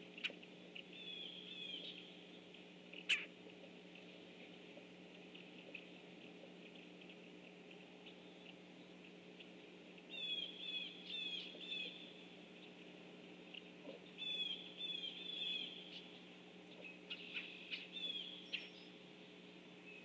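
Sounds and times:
woodpecker rolling calls: 3.0 - 3.3.

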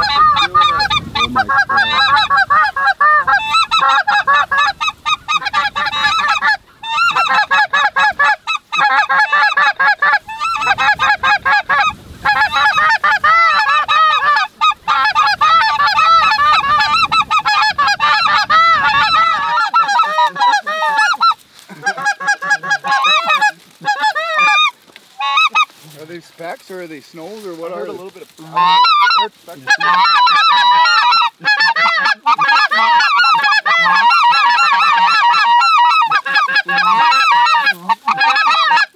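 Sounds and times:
goose calls blown by hunters: 0.0 - 25.8, 27.7 - 38.9
geese calling: 0.0 - 38.9.

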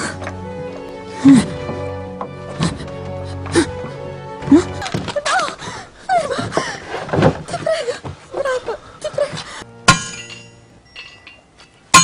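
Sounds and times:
woman moaning and crying: 1.0 - 6.9
sharp metallic clang: 9.8 - 12.0.

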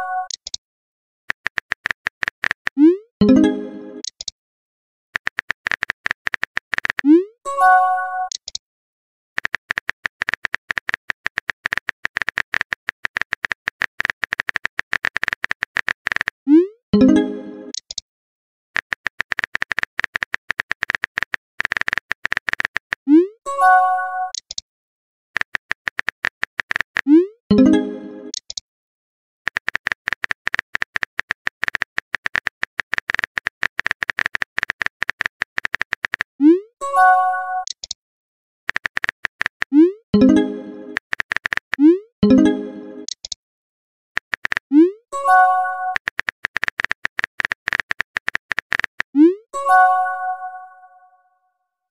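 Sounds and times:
phone keyboard clicks: 1.3 - 2.8, 4.0 - 4.3, 5.2 - 7.1, 8.3 - 8.6, 9.4 - 16.4, 18.8 - 23.0, 25.4 - 27.1, 29.5 - 36.3, 37.6 - 38.0, 38.7 - 39.8, 40.9 - 41.8, 43.0 - 43.4, 44.2 - 44.7, 45.9 - 49.2.

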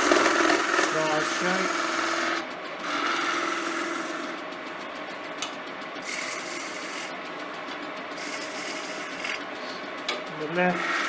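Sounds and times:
chisel shaving wood: 0.0 - 4.4, 6.0 - 7.1, 8.2 - 9.4, 10.5 - 11.0
wood lathe humming: 0.0 - 11.0.

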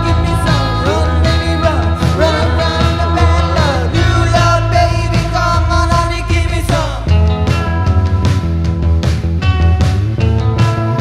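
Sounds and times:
person singing: 0.0 - 7.3
rock band playing: 0.0 - 11.0.

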